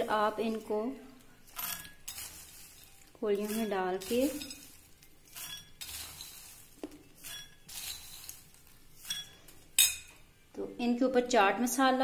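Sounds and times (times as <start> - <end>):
corn kernels rattling in glass bowl: 1.5 - 9.5.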